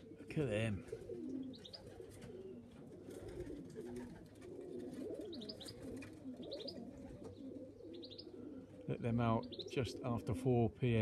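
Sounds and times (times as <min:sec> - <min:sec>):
pigeons cooing: 0:00.0 - 0:11.0
small bird chirping: 0:01.3 - 0:01.9, 0:05.2 - 0:08.4, 0:09.4 - 0:09.8.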